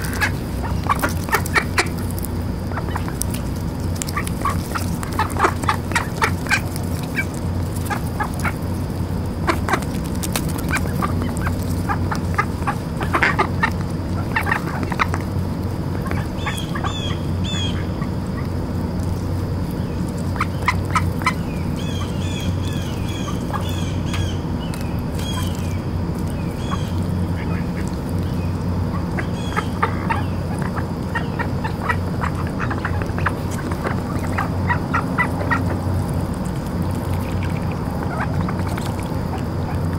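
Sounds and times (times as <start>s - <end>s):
ducks quacking softly: 0.0s - 8.8s, 9.4s - 19.2s, 26.5s - 36.5s, 37.1s - 39.9s
steady low hum: 0.0s - 39.9s.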